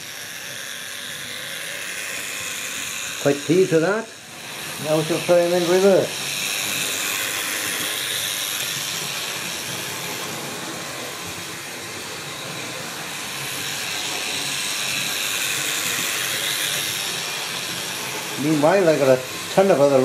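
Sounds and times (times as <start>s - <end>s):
model train motor whirring: 0.0s - 20.0s.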